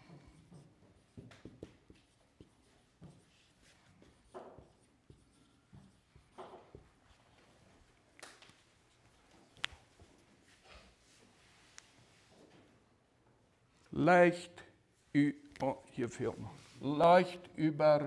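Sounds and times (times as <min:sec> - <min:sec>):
marker squeaking on whiteboard: 0:00.0 - 0:06.9.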